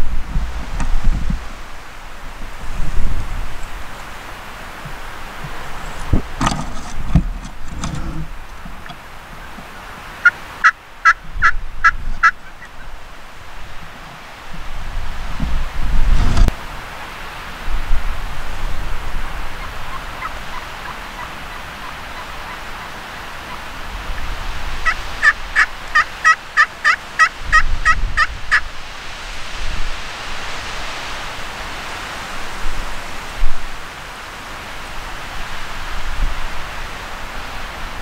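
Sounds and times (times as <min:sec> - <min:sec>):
wind buffeting microphone: 0:00.0 - 0:09.8, 0:11.2 - 0:16.6, 0:17.5 - 0:26.0, 0:27.3 - 0:33.8
turkey yelps: 0:10.2 - 0:12.9, 0:19.2 - 0:28.7.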